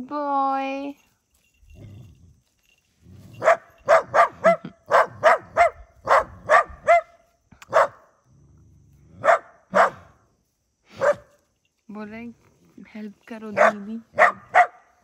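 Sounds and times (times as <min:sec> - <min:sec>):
dog barking sharply: 0:03.4 - 0:07.1, 0:07.7 - 0:08.0, 0:09.2 - 0:10.1, 0:13.6 - 0:14.8.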